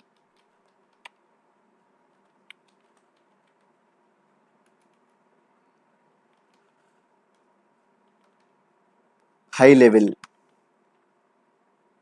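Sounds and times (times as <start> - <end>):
keyboard typing: 0.0 - 1.3, 2.1 - 3.8, 4.5 - 5.2, 6.2 - 8.6.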